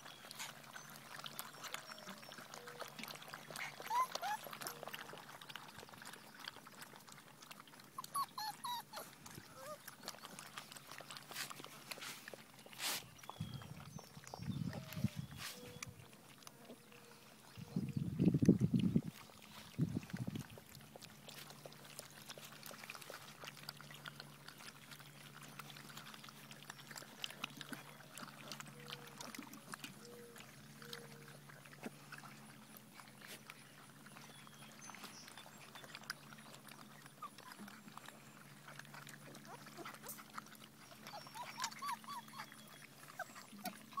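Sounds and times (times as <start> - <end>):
puppies eating from metal pans: 0.0 - 44.0
puppy squeaks: 3.6 - 4.8, 8.0 - 9.8, 40.8 - 44.0.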